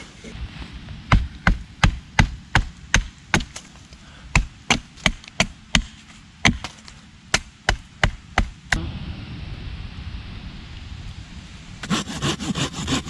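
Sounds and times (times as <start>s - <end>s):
hatchet chopping wood: 1.1s - 3.7s, 4.3s - 8.6s.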